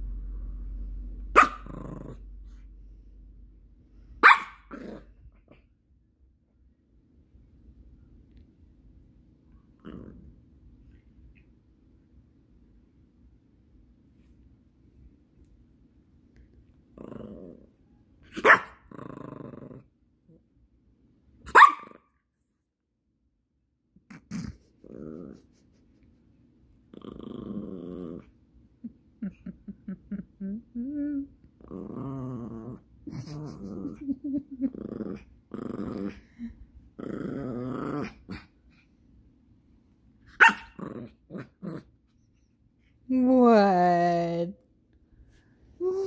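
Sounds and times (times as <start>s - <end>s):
dog growling low: 0.0s - 3.2s, 9.7s - 10.5s, 16.9s - 17.9s, 18.9s - 20.4s, 24.0s - 25.7s, 26.9s - 28.4s, 29.2s - 38.8s, 40.8s - 42.0s
small dog barking sharply: 4.2s - 4.7s, 18.4s - 18.8s, 21.5s - 22.0s, 40.4s - 40.8s.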